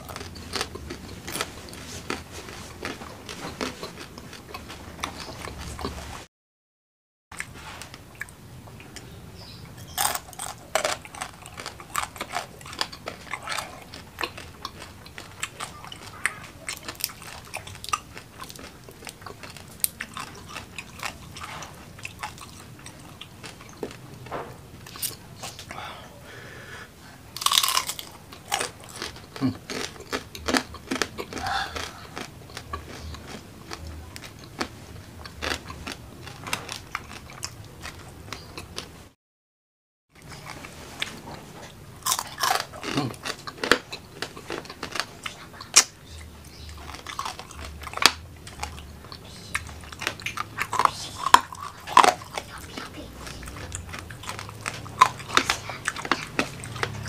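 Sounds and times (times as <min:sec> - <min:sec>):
chewing with crunches: 0:00.0 - 0:06.3, 0:07.3 - 0:25.8, 0:27.3 - 0:39.0, 0:40.2 - 0:57.0.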